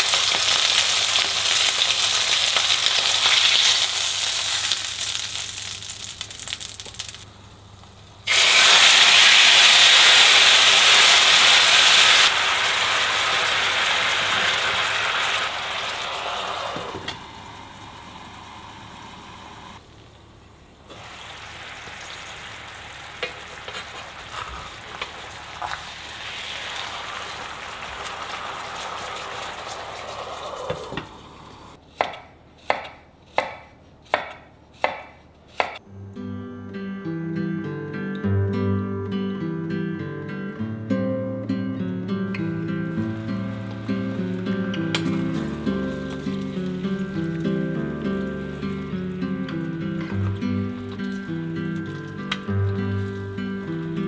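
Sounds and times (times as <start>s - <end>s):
food sizzling in a pan: 0.0s - 7.3s, 8.3s - 19.8s, 20.9s - 31.8s, 42.4s - 54.0s.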